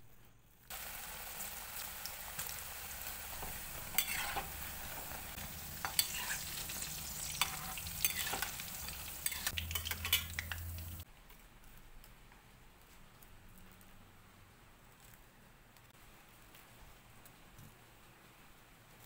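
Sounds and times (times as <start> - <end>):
food sizzling in hot oil: 0.7 - 11.0
metal utensils clinking on pan: 3.4 - 4.6, 5.7 - 11.0.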